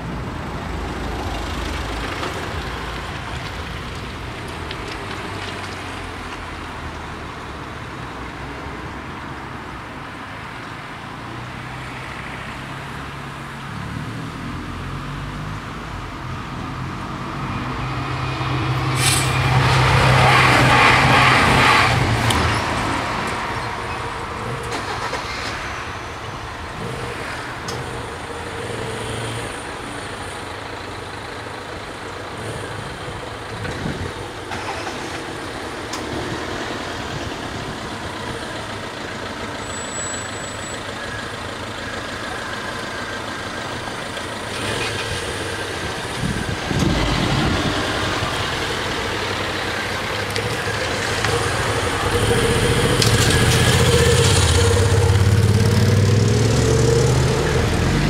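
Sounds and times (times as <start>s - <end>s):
diesel railcar passing: 0.0s - 15.3s, 16.0s - 58.0s
car pulling away: 16.6s - 58.0s
vehicles idling: 18.8s - 58.0s
motorcycle pulling away: 44.0s - 58.0s.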